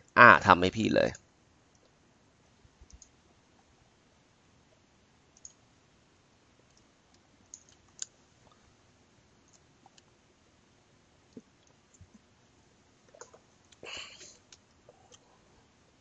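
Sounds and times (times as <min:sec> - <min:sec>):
faint clicks: 0:02.8 - 0:03.7, 0:05.4 - 0:05.6, 0:06.6 - 0:08.6.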